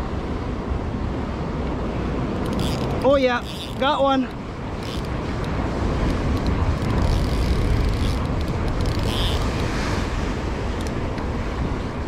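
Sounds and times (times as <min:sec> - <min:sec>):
surf against rocks: 0:00.0 - 0:12.0
wind on microphone: 0:00.0 - 0:12.0
fishing reel clicking: 0:02.4 - 0:03.9, 0:04.8 - 0:05.5, 0:06.1 - 0:09.6.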